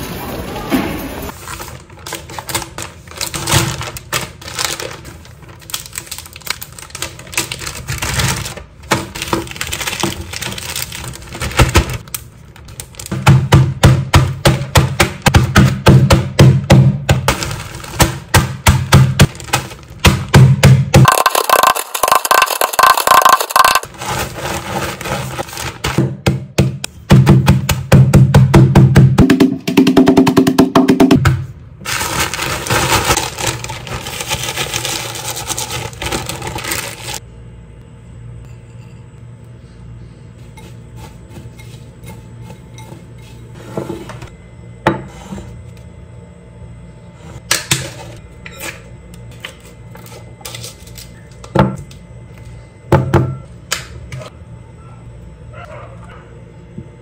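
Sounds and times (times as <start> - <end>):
packaging rustling: 1.4 - 13.1, 31.9 - 37.2
plastic bag crinkling: 1.4 - 13.1, 31.8 - 37.2
cookies crushed with thumps: 2.1 - 37.2.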